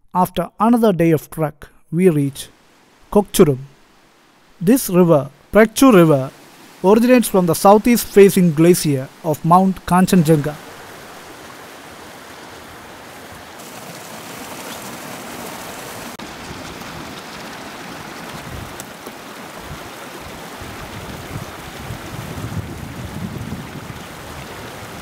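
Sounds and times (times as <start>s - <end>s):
mountain river rushing: 2.0s - 25.0s
wind gusting on microphone: 18.0s - 18.8s, 19.5s - 25.0s.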